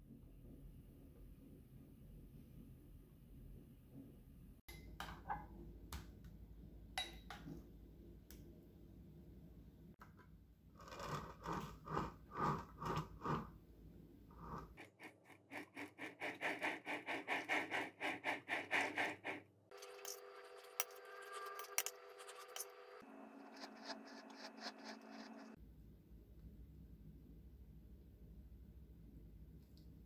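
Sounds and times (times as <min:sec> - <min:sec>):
spatula scraping icing: 0:10.8 - 0:13.5, 0:14.3 - 0:25.6.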